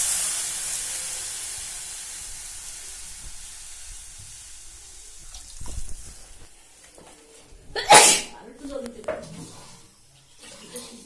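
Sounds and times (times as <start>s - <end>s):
water sizzling in hot wok: 0.0s - 6.9s.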